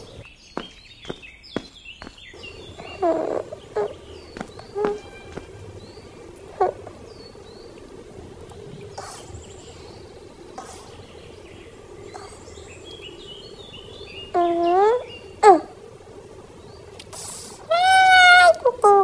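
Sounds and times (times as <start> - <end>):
high bird chirps: 0.0 - 7.9
insects droning: 0.0 - 18.9.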